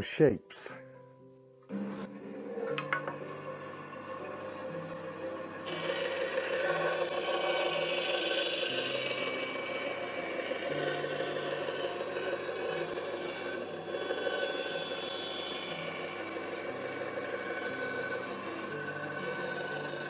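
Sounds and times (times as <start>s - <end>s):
band saw running: 1.7s - 20.0s
blade rasping through wood: 5.6s - 20.0s.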